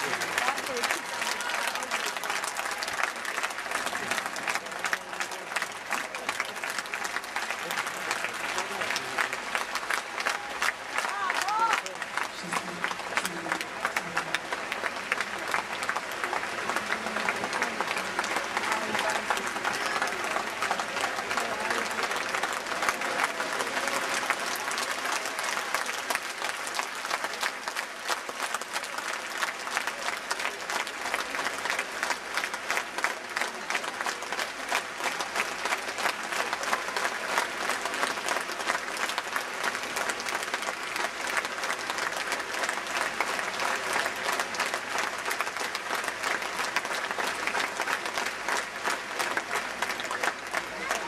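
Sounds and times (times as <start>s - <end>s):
large crowd applauding: 0.0s - 51.0s.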